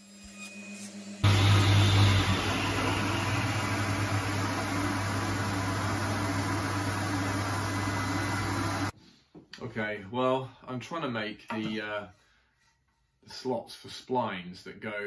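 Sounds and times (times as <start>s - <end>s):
table saw running: 1.2s - 8.9s.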